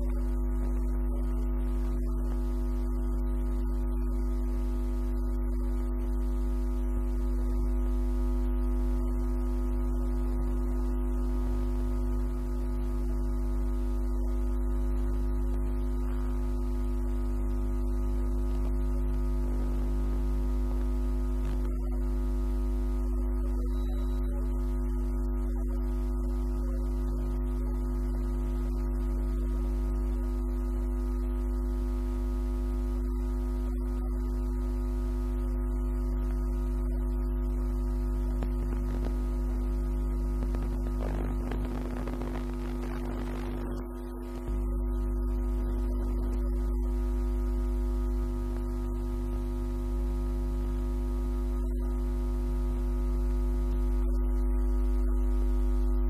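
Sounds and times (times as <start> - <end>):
low tone drone: 23.0 - 24.6.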